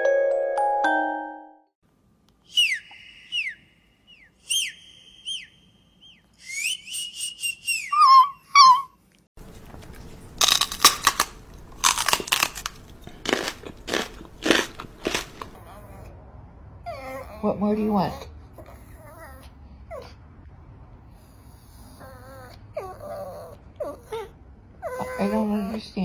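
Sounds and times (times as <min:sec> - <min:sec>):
person whistling high notes: 0:02.5 - 0:08.1.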